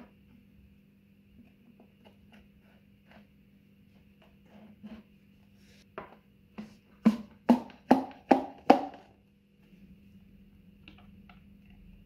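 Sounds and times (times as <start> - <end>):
hollow knocks on cardboard can: 7.0 - 9.1.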